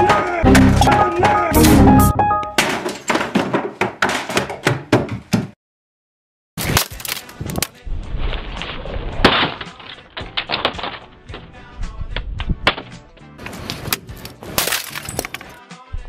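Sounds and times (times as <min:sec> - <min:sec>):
laptop smashing against floor: 0:02.6 - 0:04.8, 0:09.1 - 0:11.3
plastic pieces clattering: 0:06.6 - 0:07.8, 0:08.6 - 0:11.5, 0:13.4 - 0:15.6.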